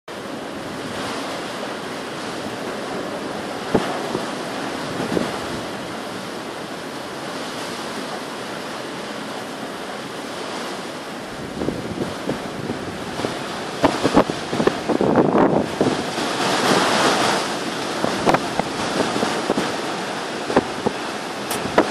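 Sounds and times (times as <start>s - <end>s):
strong wind blowing: 0.2s - 21.9s
wind bumps on microphone: 2.2s - 5.9s, 11.3s - 21.9s.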